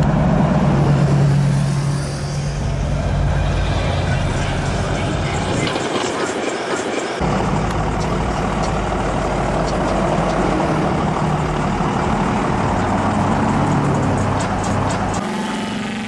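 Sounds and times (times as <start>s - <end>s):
street traffic: 0.0s - 16.0s
low engine hum: 7.2s - 16.0s.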